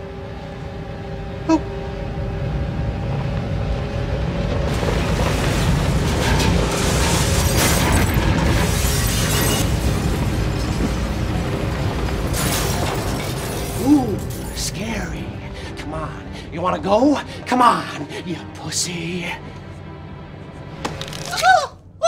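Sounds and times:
rumbling cinematic swell: 0.0 - 13.4
film score music: 0.0 - 22.0.

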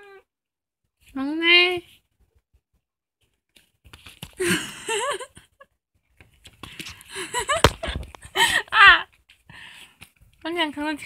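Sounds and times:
crinkling and rustling: 3.2 - 4.4.

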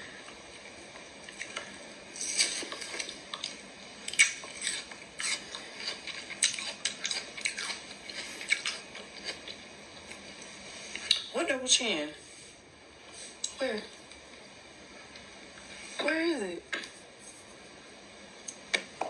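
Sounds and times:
wet chewing and mouth clicks: 0.3 - 10.2.

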